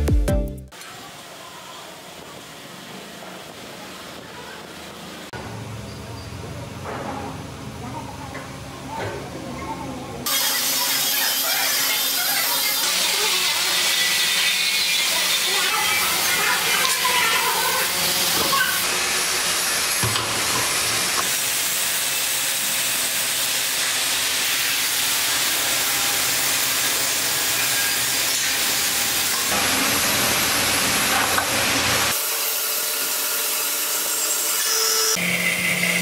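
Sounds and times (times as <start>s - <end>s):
band saw cutting steel hissing: 10.3s - 36.0s.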